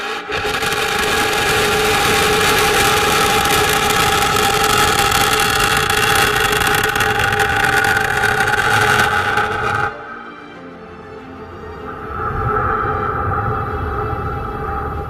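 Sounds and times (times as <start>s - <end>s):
missile rocket motor rushing: 0.0s - 9.9s.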